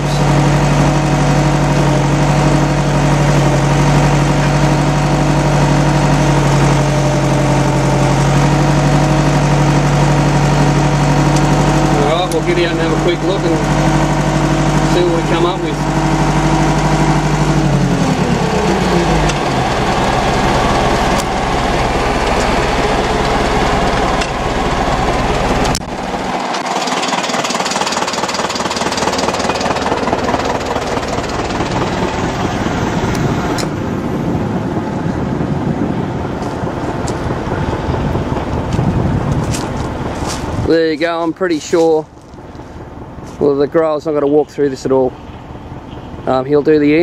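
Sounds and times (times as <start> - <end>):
tractor engine running: 0.0 - 47.0
wind buffeting microphone: 27.5 - 47.0.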